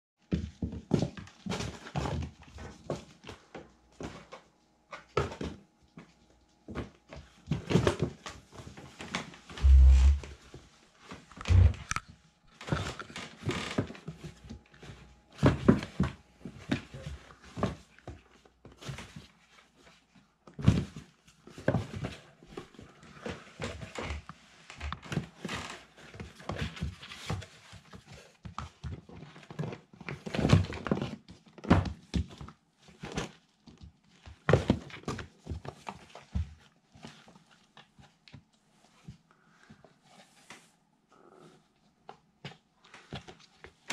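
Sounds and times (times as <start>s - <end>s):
kittens scuffling in cardboard box: 0.3s - 10.2s, 12.6s - 40.8s, 41.4s - 43.9s
paws scratching cardboard: 20.8s - 40.7s.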